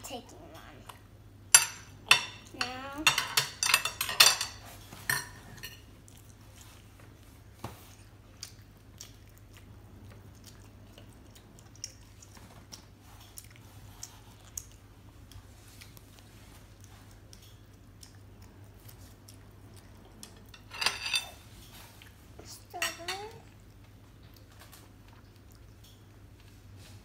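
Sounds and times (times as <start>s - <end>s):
forks clinking against plates: 1.5s - 5.9s, 20.5s - 21.4s.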